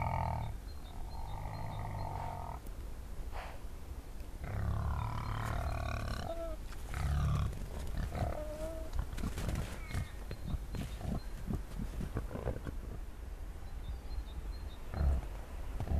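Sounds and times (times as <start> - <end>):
wild boar grunting: 0.0 - 2.6, 4.4 - 13.0.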